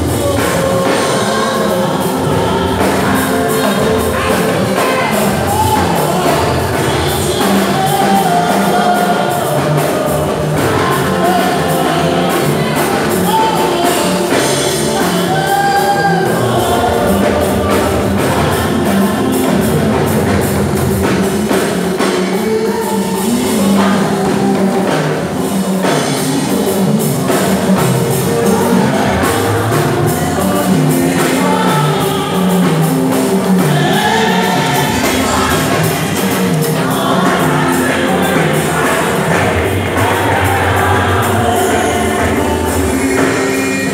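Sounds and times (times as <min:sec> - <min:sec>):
band playing: 0:00.0 - 0:43.9
gospel singing: 0:00.0 - 0:43.9
steady drum beat: 0:00.0 - 0:43.9.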